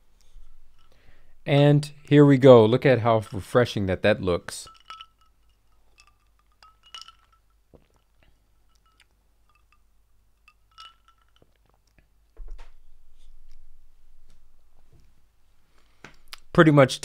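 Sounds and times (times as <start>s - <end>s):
ice cubes clinking in glass: 4.5s - 9.8s, 10.4s - 11.6s.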